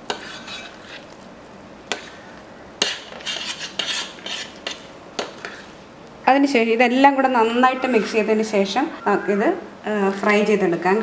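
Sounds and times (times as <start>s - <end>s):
hand mixing dough in bowl: 0.1s - 1.2s, 2.8s - 5.8s.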